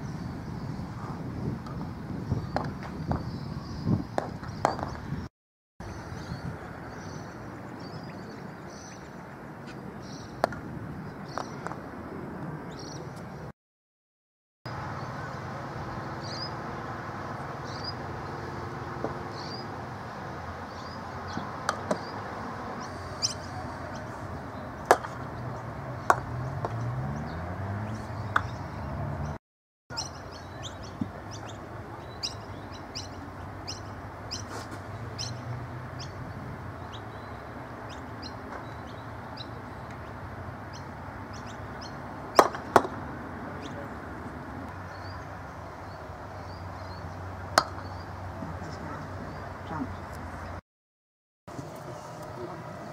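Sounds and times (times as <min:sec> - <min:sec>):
birds chirping: 0:00.0 - 0:11.8, 0:12.6 - 0:13.5, 0:14.7 - 0:19.8, 0:20.5 - 0:42.8, 0:43.5 - 0:50.6
mallets striking balls: 0:47.6 - 0:47.9.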